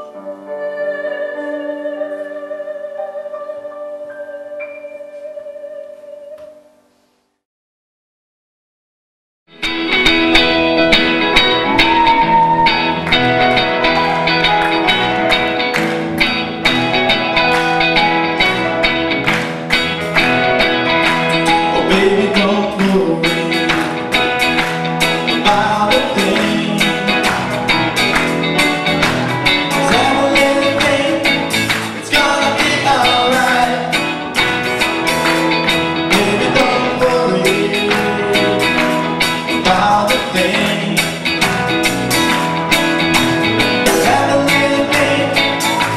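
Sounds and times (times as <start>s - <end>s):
drums: 9.5s - 45.9s
electric guitars: 9.5s - 45.9s
grand piano: 9.6s - 45.9s.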